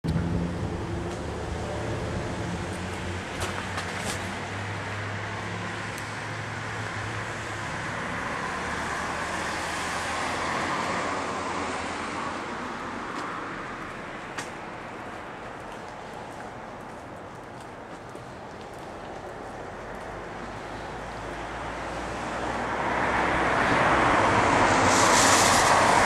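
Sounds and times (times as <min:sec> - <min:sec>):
low engine hum: 0:00.0 - 0:05.5
car passing: 0:00.2 - 0:17.4, 0:18.1 - 0:26.0.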